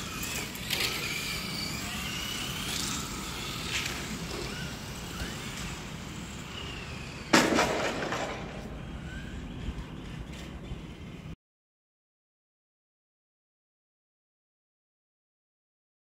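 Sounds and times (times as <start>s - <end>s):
electric rc car motors whining: 0.0s - 11.4s.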